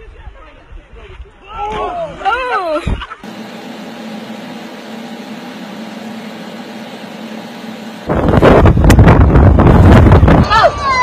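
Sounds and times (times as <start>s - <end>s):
steady machine hum: 3.2s - 10.4s
loud rush of noise: 3.3s - 11.0s.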